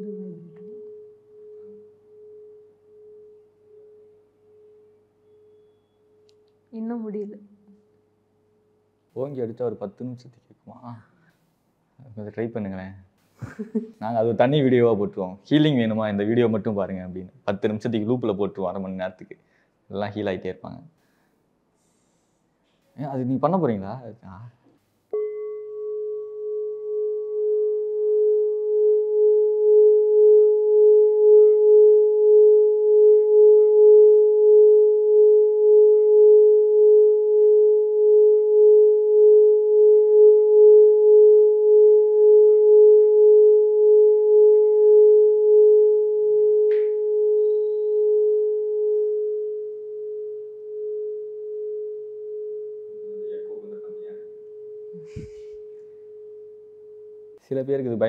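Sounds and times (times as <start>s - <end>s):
singing bowl steady tone: 0.0s - 6.3s, 25.1s - 57.5s.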